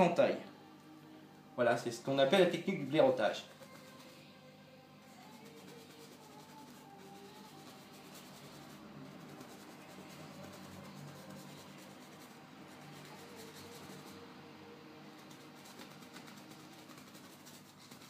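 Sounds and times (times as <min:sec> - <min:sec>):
brush bristles rubbing canvas: 0:03.4 - 0:04.3, 0:05.1 - 0:14.3, 0:15.2 - 0:18.0.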